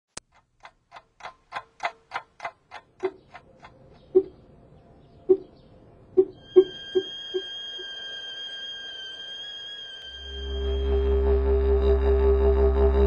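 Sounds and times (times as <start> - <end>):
rapid even ticking: 0.2 - 4.4, 6.2 - 7.9
dull low clicks: 0.2 - 4.6, 5.2 - 7.5.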